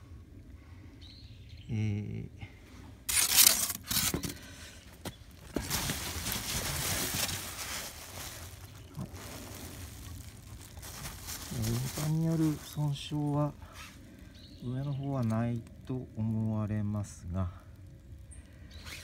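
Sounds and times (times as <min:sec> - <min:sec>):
brief low vocal sound: 0:01.6 - 0:02.5
bubble wrap rustling and crinkling: 0:03.1 - 0:04.3, 0:05.2 - 0:15.6.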